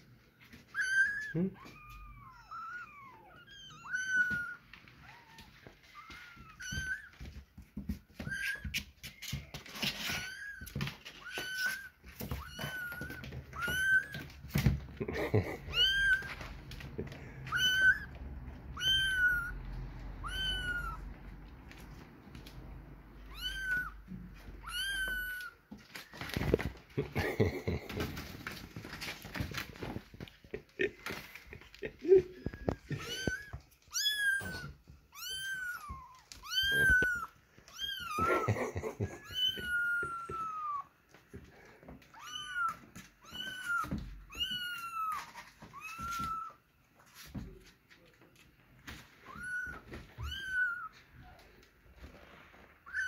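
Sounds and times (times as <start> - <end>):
kittens mewing: 0.6 - 7.2, 9.7 - 22.0, 23.2 - 41.4, 49.2 - 51.5.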